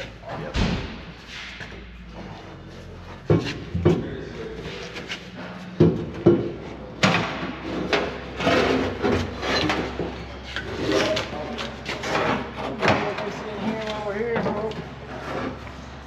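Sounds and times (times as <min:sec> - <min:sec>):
metal tank scraping: 0:03.2 - 0:16.0.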